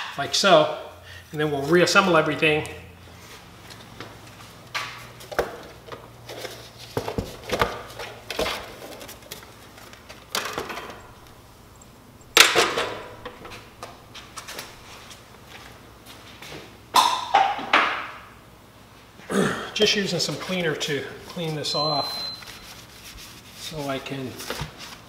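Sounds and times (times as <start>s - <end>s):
tools knocking and clattering: 10.3s - 11.3s.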